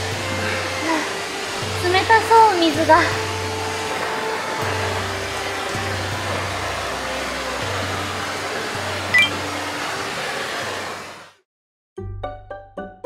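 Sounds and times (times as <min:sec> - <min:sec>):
soft low music: 0:00.0 - 0:10.3
waterfall roaring: 0:00.0 - 0:11.4
high chirp: 0:09.1 - 0:09.4.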